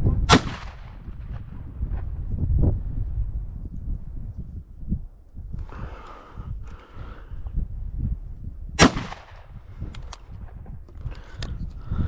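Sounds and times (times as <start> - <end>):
shotgun shot: 0.3 - 1.5, 8.8 - 9.6.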